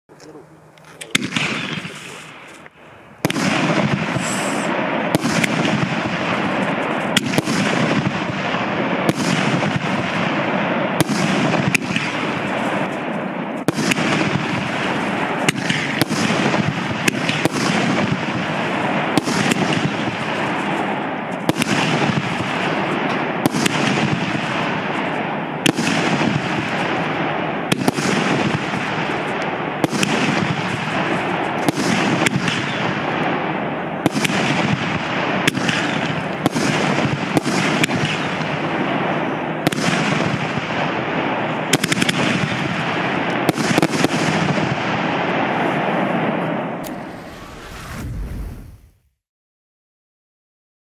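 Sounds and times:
firework shots banging: 0:00.9 - 0:48.8
steady rushing noise: 0:45.2 - 0:49.1.

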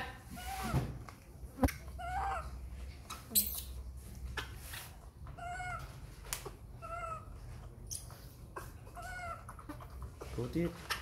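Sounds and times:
baby monkey high-pitched calls: 0:01.9 - 0:02.6, 0:05.4 - 0:06.0, 0:06.8 - 0:07.4, 0:08.9 - 0:10.0.

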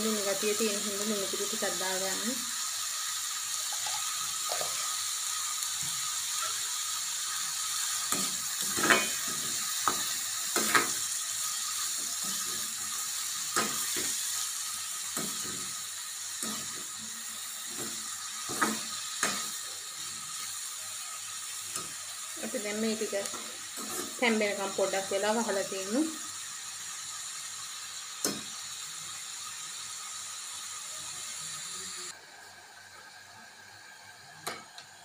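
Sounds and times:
vegetables sizzling in oil: 0:00.0 - 0:35.0
spoon scraping metal pan: 0:08.1 - 0:11.0.

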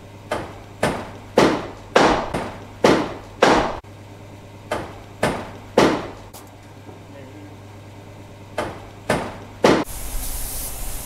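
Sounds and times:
hammer striking: 0:00.3 - 0:03.8, 0:04.7 - 0:06.2.

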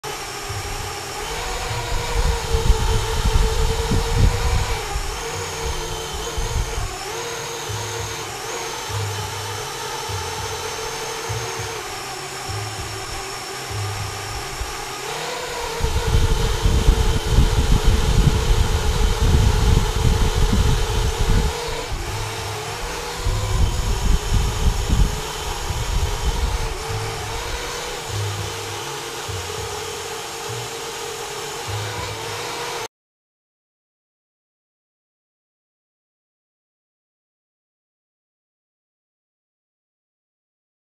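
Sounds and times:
drone motors whining: 0:00.0 - 0:32.9
heavy low rumbling: 0:00.5 - 0:07.0, 0:15.6 - 0:28.6.

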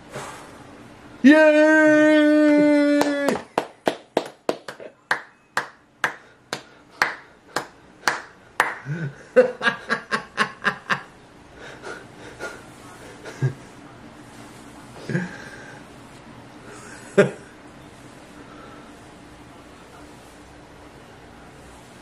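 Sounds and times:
man cheering: 0:01.2 - 0:03.7
hands clapping: 0:02.9 - 0:08.9.

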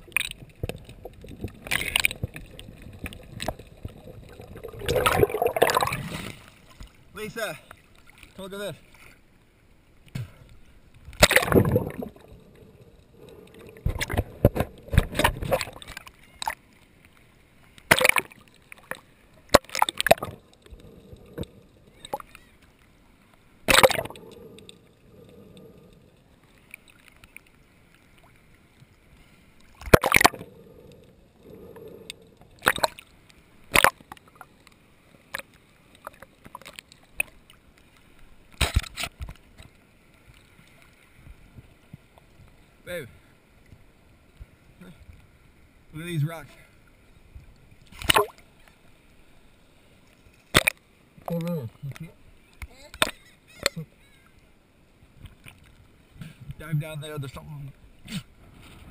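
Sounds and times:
muffled underwater gurgling: 0:00.0 - 0:06.1, 0:11.2 - 0:16.5, 0:19.6 - 0:22.6, 0:23.7 - 0:26.3, 0:29.9 - 0:33.0
water splashing and sloshing: 0:00.0 - 0:58.9.

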